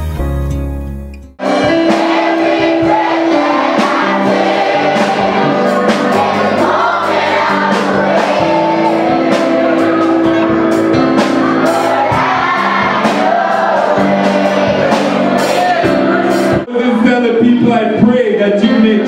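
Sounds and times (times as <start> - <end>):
rhythmic beat: 1.2 - 17.8
crowd singing a worship song: 1.4 - 16.6.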